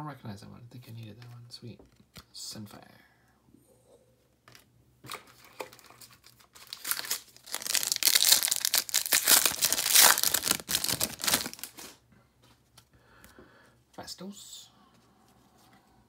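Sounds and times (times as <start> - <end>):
foil wrapper crackling: 5.6 - 12.0.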